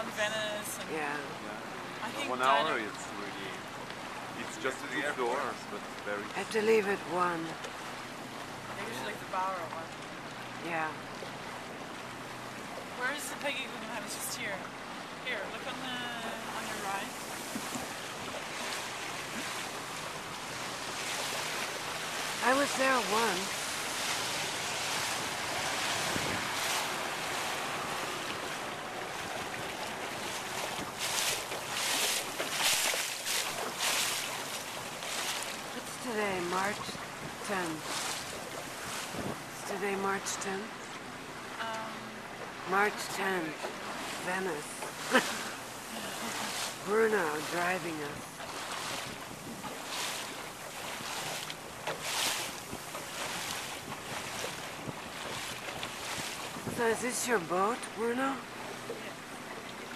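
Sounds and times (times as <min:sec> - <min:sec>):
water rushing past boat hull: 0:00.0 - 0:59.9
wind buffeting microphone: 0:23.4 - 0:35.8, 0:36.8 - 0:39.6, 0:48.0 - 0:57.0.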